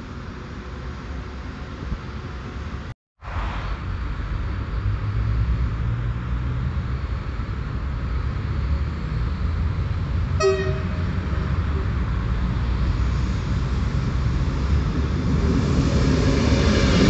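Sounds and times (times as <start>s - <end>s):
low train rumble: 0.0s - 17.0s
train horn blast: 10.4s - 11.8s.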